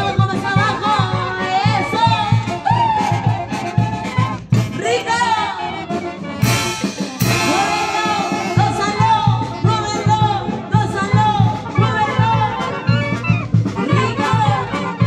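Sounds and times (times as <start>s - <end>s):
brass band playing dance song: 0.0s - 15.0s
person singing: 7.2s - 11.2s.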